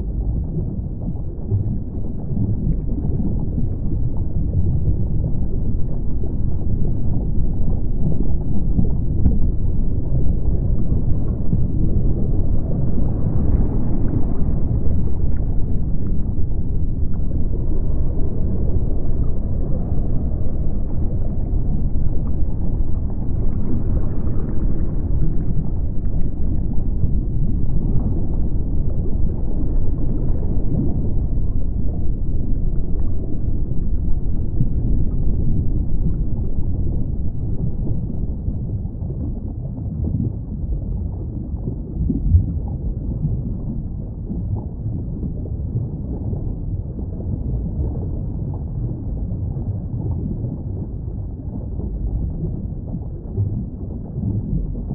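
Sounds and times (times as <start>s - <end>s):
underwater rumbling wash of water: 0.0s - 54.9s.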